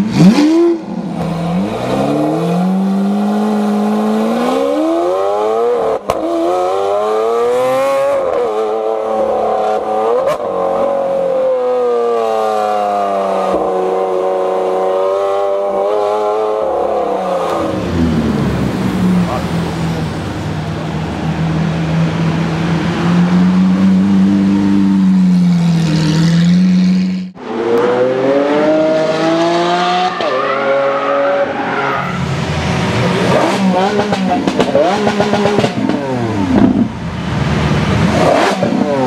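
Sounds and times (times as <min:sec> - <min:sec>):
car engines revving hard: 0:00.0 - 0:39.0.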